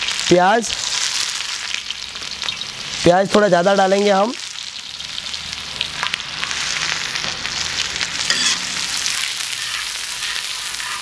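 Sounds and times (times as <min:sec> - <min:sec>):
onions sizzling in oil: 0:00.0 - 0:11.0
spatula scraping pan: 0:08.2 - 0:11.0.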